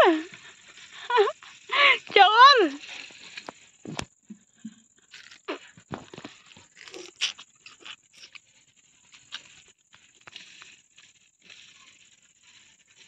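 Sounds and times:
sugarcane crunching while chewed: 0:02.8 - 0:04.0, 0:05.0 - 0:13.0.

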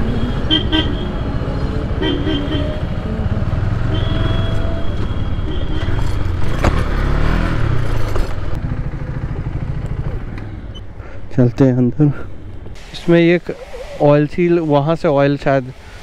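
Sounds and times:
engine revving: 0:05.9 - 0:10.0
motorcycle engine running: 0:07.8 - 0:10.8.

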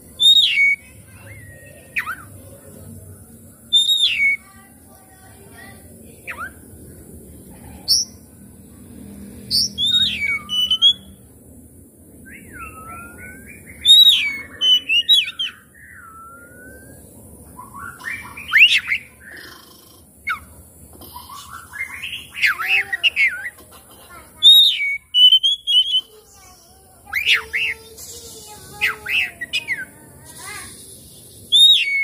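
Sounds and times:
bird singing whistled phrases: 0:00.2 - 0:02.3, 0:03.7 - 0:04.5, 0:09.5 - 0:11.2, 0:12.2 - 0:19.2, 0:24.4 - 0:26.1, 0:31.5 - 0:32.0.

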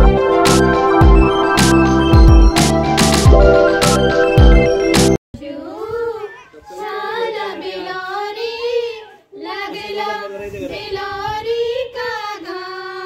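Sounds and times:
girls singing folk song: 0:05.4 - 0:13.0.

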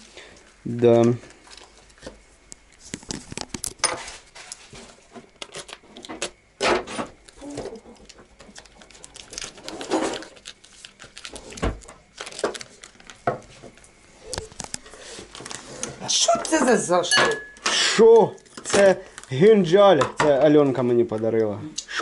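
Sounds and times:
plastic packaging crinkling: 0:07.2 - 0:15.9.

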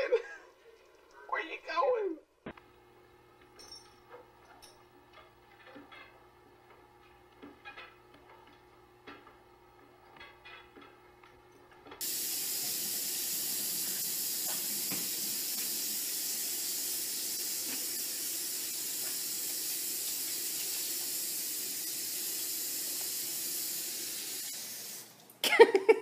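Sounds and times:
faucet running into sink: 0:12.0 - 0:25.3.

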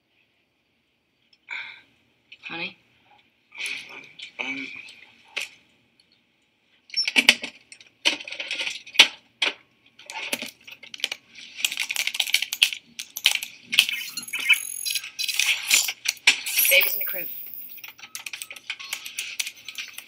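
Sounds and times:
typing on laptop keyboard: 0:10.3 - 0:15.0, 0:16.9 - 0:20.0.

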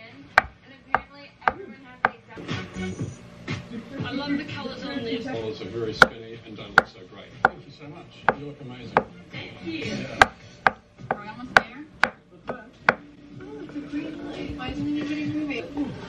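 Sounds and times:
knife knocking on cutting board: 0:00.4 - 0:02.2, 0:08.3 - 0:09.2, 0:10.2 - 0:13.0.

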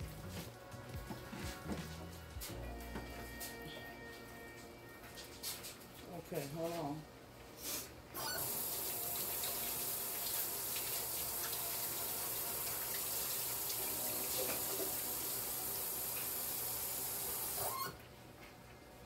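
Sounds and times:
kitchen tap running: 0:08.2 - 0:18.0.

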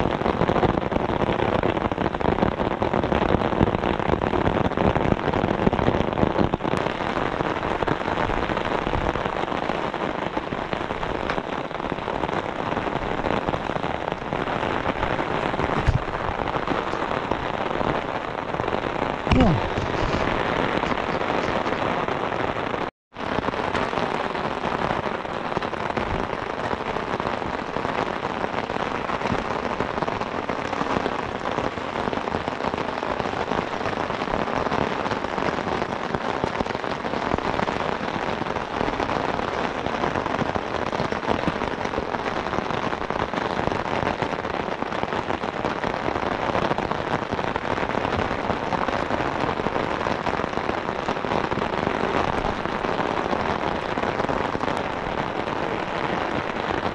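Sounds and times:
heavy rain: 0:00.0 - 0:56.9.

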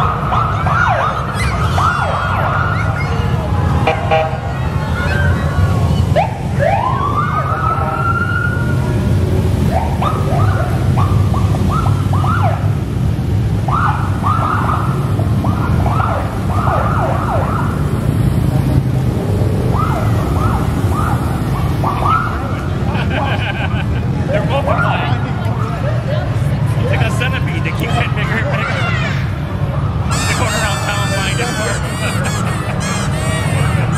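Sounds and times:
police siren whoops and chirps: 0:00.0 - 0:03.3, 0:05.0 - 0:08.9, 0:09.7 - 0:12.7, 0:13.7 - 0:17.8, 0:30.1 - 0:33.9
motorcycle engines rumbling: 0:00.0 - 0:33.9.

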